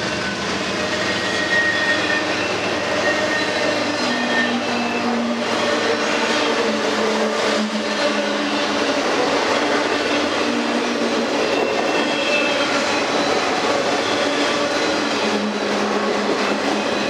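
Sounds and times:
train wheels rolling on rails: 0.0 - 17.0
faint squealing tones: 1.0 - 5.7.

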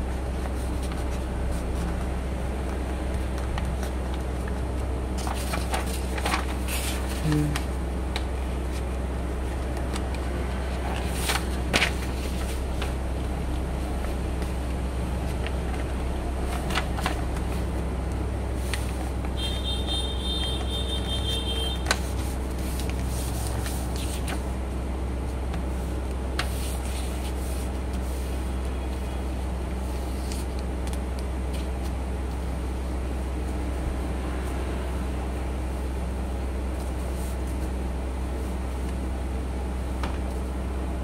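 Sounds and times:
paper crinkling and folding: 0.0 - 24.6, 25.3 - 32.6
steady low hum: 0.0 - 41.0.

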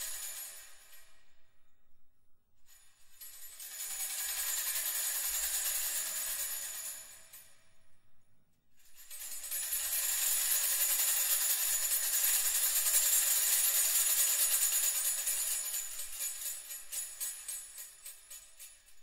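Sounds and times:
metal jingles shaken: 8.9 - 19.0.

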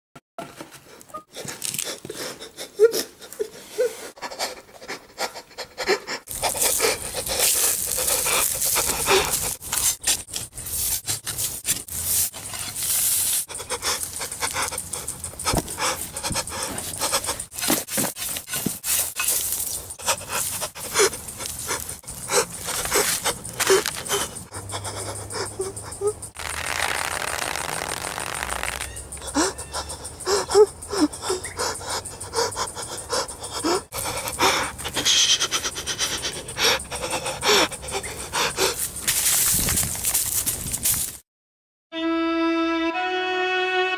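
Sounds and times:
man panting and sobbing: 1.3 - 9.6, 13.5 - 17.6, 19.9 - 26.4, 29.1 - 38.9
shovel digging into soil: 6.4 - 13.6, 15.4 - 21.9.

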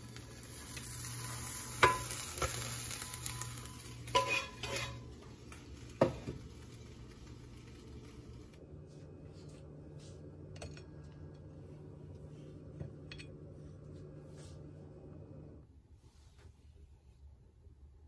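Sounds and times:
skillet sizzling: 0.0 - 9.5
skillet and spatula clinking on plate: 4.1 - 5.0.

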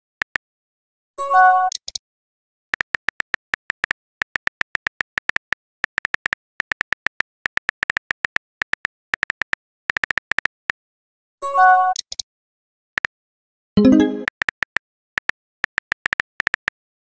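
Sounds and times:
phone keyboard typing clicks: 2.8 - 10.6, 13.8 - 16.8.

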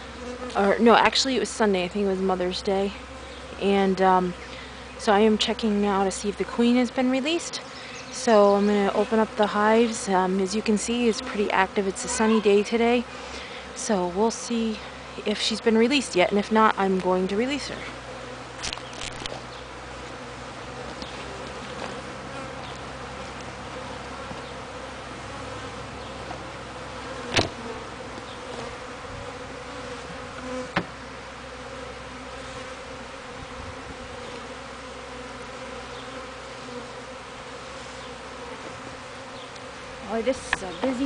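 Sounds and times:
honeybees buzzing: 0.0 - 41.0
sharp knocks: 27.3 - 27.6.

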